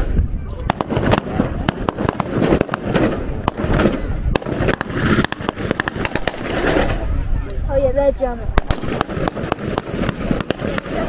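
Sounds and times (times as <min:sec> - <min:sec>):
blank gunfire cracks: 0:00.6 - 0:07.0.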